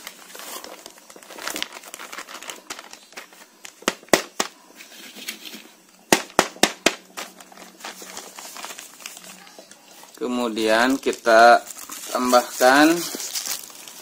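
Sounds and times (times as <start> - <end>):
plastic bag crinkling: 0.0 - 4.1, 7.1 - 14.0
bag cracking when shaken: 0.0 - 4.6, 10.6 - 14.0.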